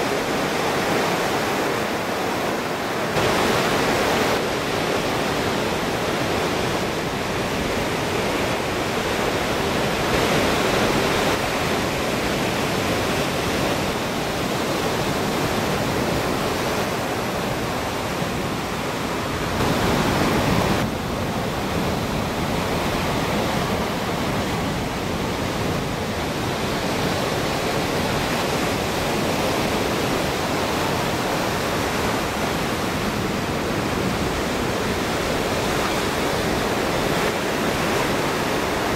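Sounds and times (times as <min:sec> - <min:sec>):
ocean surf breaking: 0:00.0 - 0:38.9.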